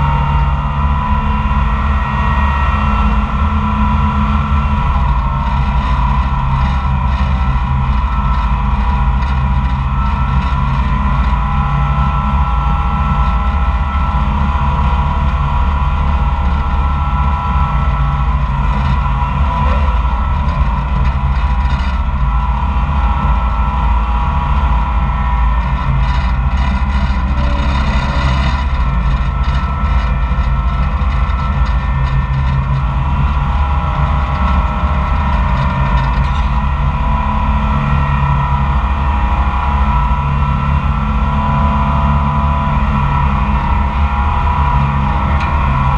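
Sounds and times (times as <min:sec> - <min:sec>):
dragline engine running loudly: 0:00.0 - 0:45.9.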